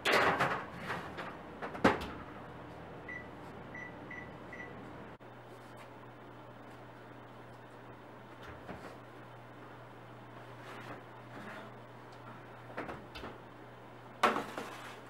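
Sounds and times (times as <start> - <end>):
oven rack and tray clattering: 0.0 - 2.4.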